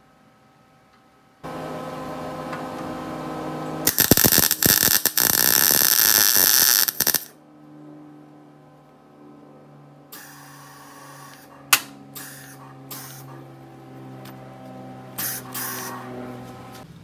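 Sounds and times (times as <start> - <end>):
welding arc crackling: 1.5 - 7.3, 10.2 - 13.2, 15.2 - 16.0
welder hiss and hum: 3.8 - 7.3, 12.2 - 13.3, 15.2 - 16.1.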